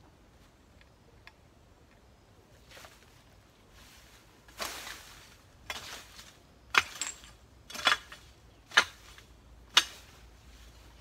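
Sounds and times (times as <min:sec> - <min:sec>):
hoe chopping into soil: 0:05.6 - 0:10.2.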